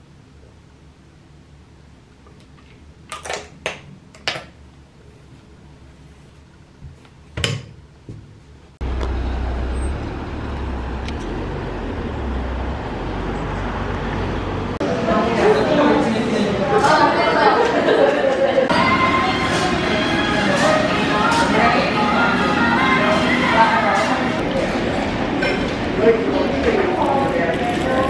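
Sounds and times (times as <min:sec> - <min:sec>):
road traffic noise: 0:08.8 - 0:15.2, 0:18.7 - 0:28.0.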